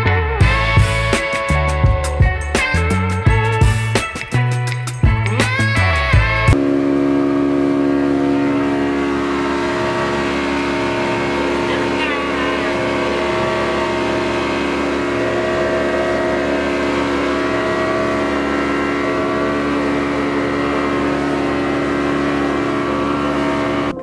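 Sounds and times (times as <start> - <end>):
outboard motor droning: 0.0 - 24.0
water rushing past hull: 6.6 - 24.0.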